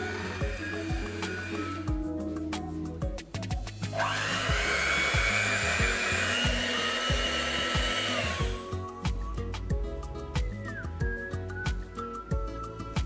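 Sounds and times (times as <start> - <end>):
stand mixer whirring: 0.0 - 1.8, 4.0 - 8.6
background music with steady beat: 0.0 - 13.0.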